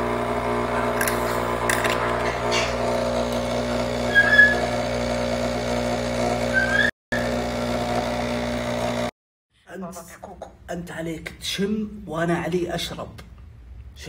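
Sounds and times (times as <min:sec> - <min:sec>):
coffee machine pump buzzing: 0:00.0 - 0:09.2
short high squeaks: 0:04.0 - 0:04.8, 0:06.5 - 0:06.9.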